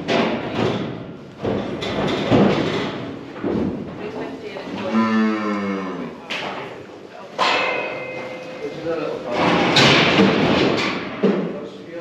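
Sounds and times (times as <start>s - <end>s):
metal gates thudding and clanging: 7.4s - 11.4s.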